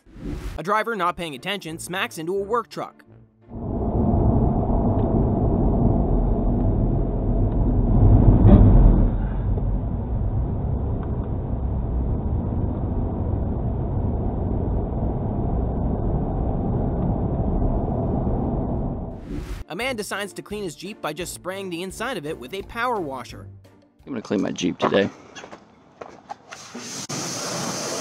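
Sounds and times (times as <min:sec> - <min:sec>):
tyre and road noise: 0:03.6 - 0:19.6, 0:25.3 - 0:28.0
dull thump of collision: 0:08.3 - 0:09.8.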